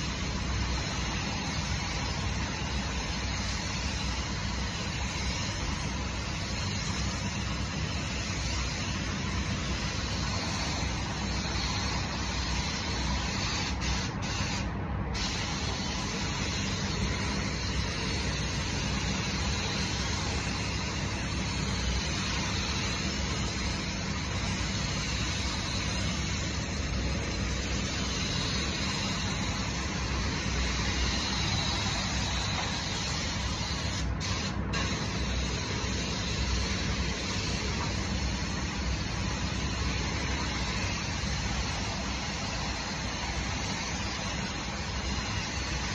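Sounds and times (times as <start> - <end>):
paint spray gun hissing: 0.0 - 45.9.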